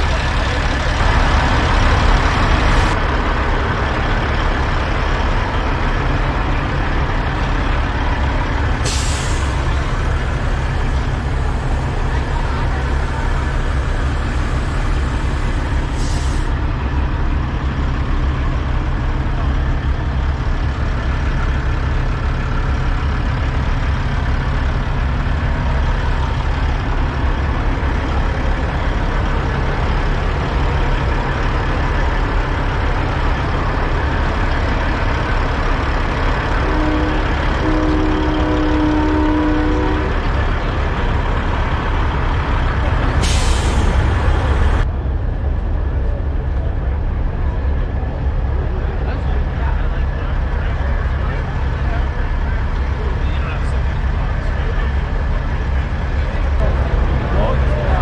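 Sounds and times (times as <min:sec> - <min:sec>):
truck diesel engines idling: 0:00.0 - 0:58.0
short hiss: 0:43.2 - 0:44.0.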